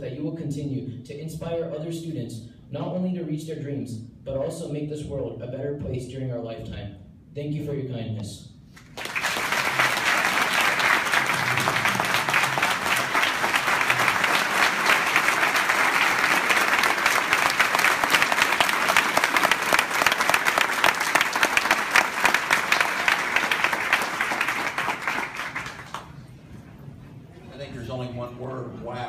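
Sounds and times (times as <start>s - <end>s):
audience applauding: 8.8s - 26.3s.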